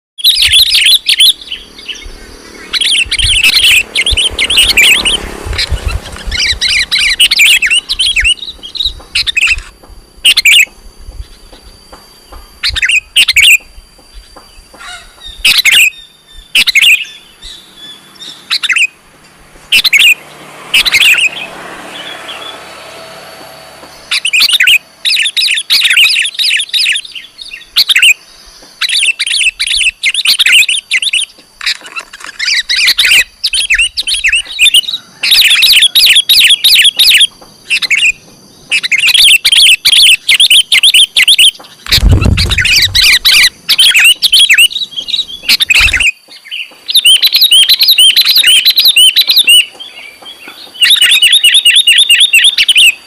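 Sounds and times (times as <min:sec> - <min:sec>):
bird sharp high chirps: 0:00.2 - 0:22.8, 0:23.8 - 0:53.0
low thump: 0:41.9 - 0:43.4.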